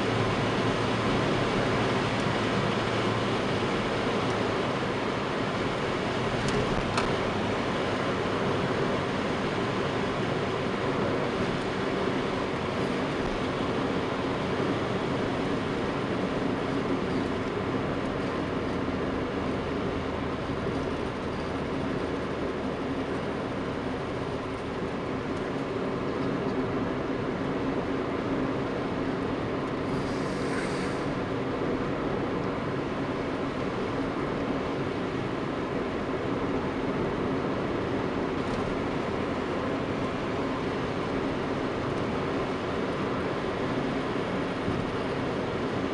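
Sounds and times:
car engine hum: 0.0s - 45.9s
tyre noise on wet road: 29.8s - 31.5s
brief hiss: 29.9s - 31.1s.

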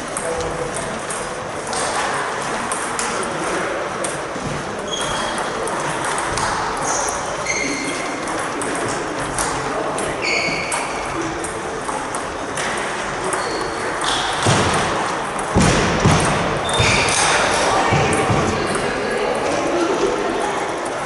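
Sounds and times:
shoes squeaking on wooden floor: 6.8s - 8.1s, 10.1s - 11.0s, 16.1s - 17.4s.

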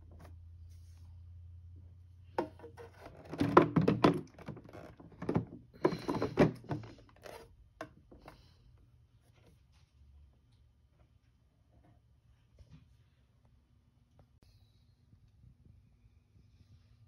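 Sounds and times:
plastic knocks and thunks: 2.4s - 7.0s.

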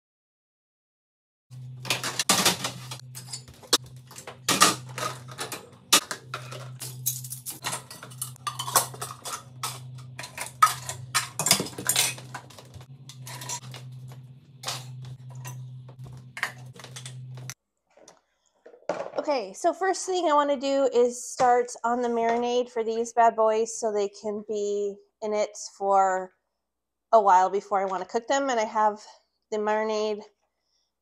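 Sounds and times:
steady low hum: 1.5s - 17.6s
dishes and utensils clinking: 1.9s - 13.9s.

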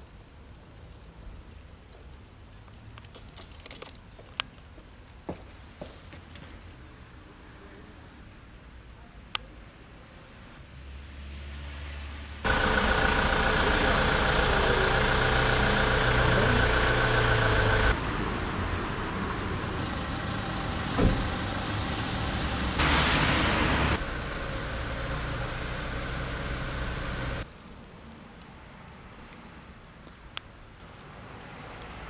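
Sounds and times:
vehicle engine running: 12.4s - 27.4s.

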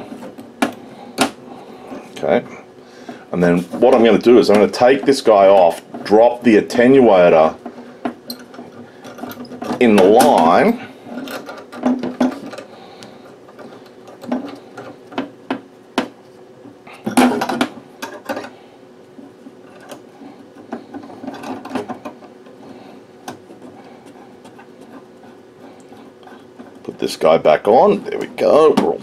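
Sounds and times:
metal connectors clicking and scraping: 3.7s - 15.2s, 19.6s - 27.2s.

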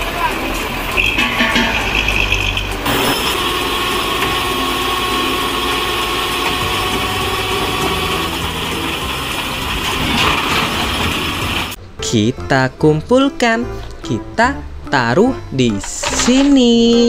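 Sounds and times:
heavy truck engine idling: 0.0s - 11.8s.

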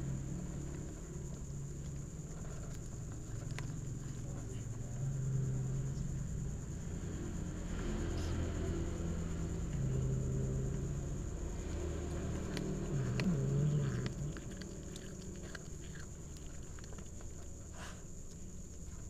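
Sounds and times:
cats chewing fish: 0.0s - 5.4s, 9.6s - 19.0s
cat low rumbling vocalisation: 7.9s - 17.6s.

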